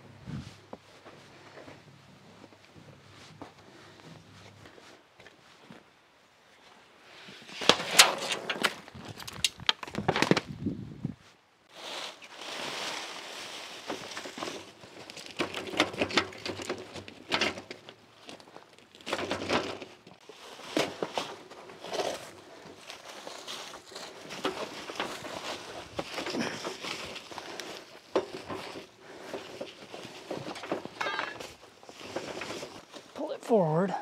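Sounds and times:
footsteps: 0.2s - 5.9s, 20.2s - 33.3s
plastic sheet rustling: 11.7s - 33.2s
wheels over gravel: 12.4s - 33.3s.

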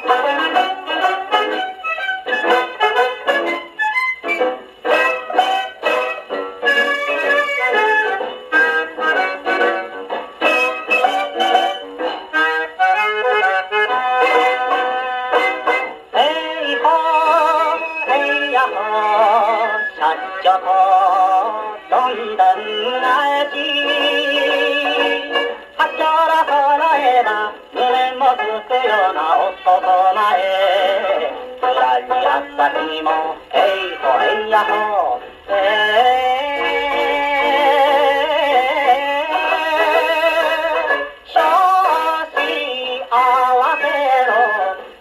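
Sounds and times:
man singing with vibrato: 0.0s - 1.6s, 12.4s - 45.0s
old record playing on a phonograph: 0.0s - 45.0s.

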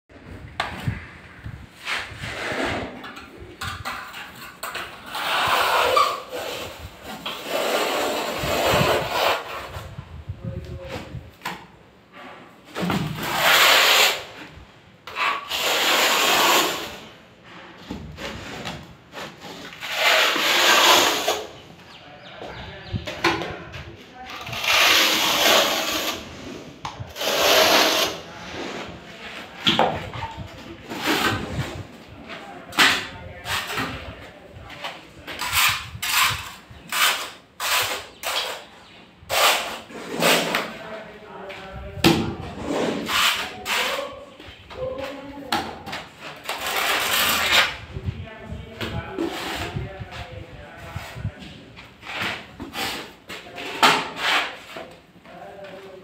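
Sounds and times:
trowel scraping tile adhesive: 1.8s - 9.9s, 13.0s - 17.2s, 18.2s - 21.6s, 24.3s - 31.9s, 35.3s - 38.7s, 39.3s - 40.8s, 42.6s - 44.1s, 46.3s - 47.8s, 52.0s - 55.0s.

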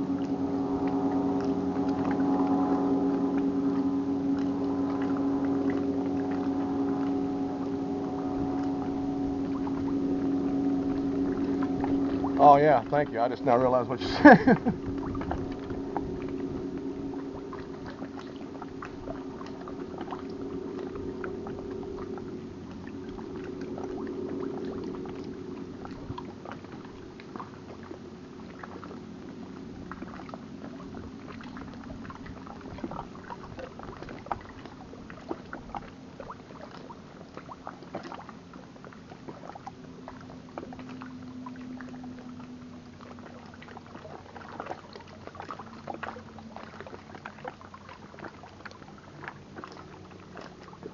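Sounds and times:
low motor hum: 0.0s - 50.9s
small waves lapping on rocks: 12.3s - 15.3s.

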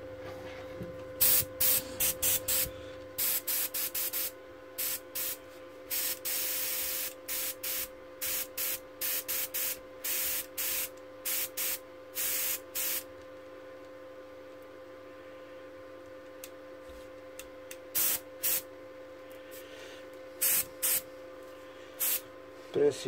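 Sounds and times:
faint steady hum: 0.0s - 23.0s
airbrush hissing bursts: 1.2s - 13.0s, 18.0s - 18.6s, 20.4s - 21.0s, 22.0s - 22.2s.

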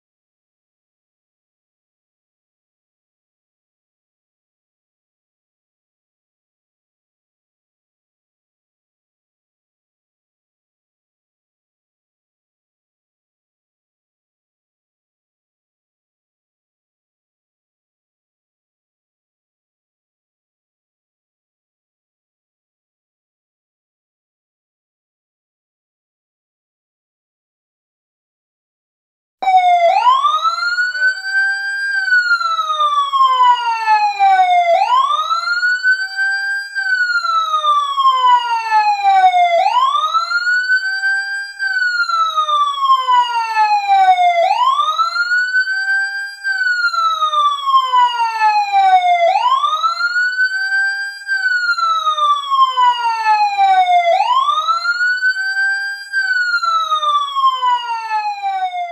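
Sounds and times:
fire truck siren wailing: 29.4s - 58.9s.

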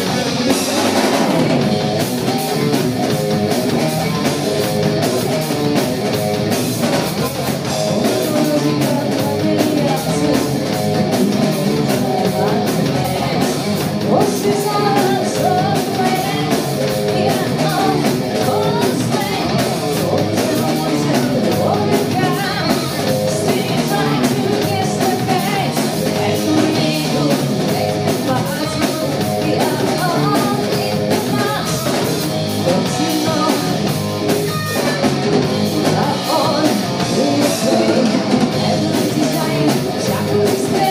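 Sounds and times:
bass guitar: 0.0s - 40.9s
drum kit: 0.0s - 40.9s
electric guitar: 0.0s - 40.9s
woman singing: 7.9s - 33.9s, 35.7s - 40.9s.

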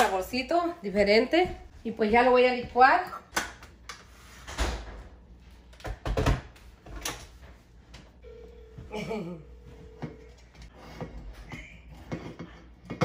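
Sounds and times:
kitchen knocks and clunks: 4.4s - 7.4s
faint steady tone: 8.2s - 10.7s.

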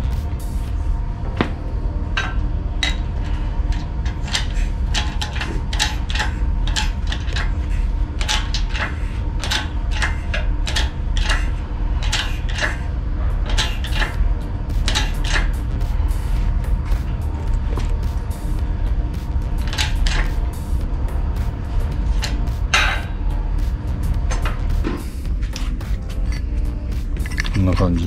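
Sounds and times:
steady low rumble: 0.0s - 28.0s
tools and metal parts clinking: 2.2s - 15.6s, 19.6s - 20.4s, 25.6s - 26.6s, 27.2s - 28.0s.

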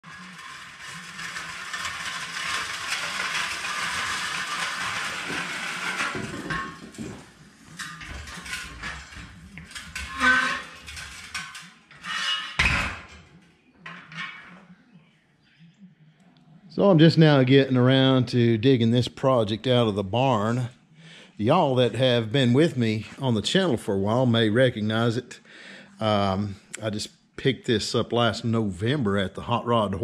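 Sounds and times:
motorcycle frame rattling: 0.0s - 12.0s
loose metal parts clanking: 0.1s - 13.2s.

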